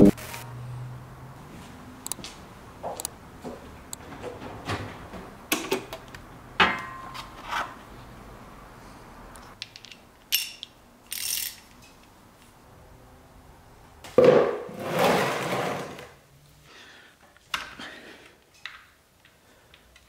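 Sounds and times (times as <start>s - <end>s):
metal sockets clinking: 9.6s - 12.0s.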